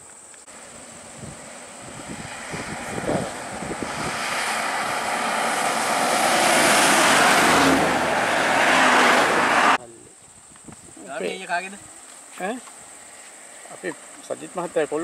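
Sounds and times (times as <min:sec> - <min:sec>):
bus driving past: 0:00.5 - 0:09.8
car driving past: 0:00.5 - 0:09.8.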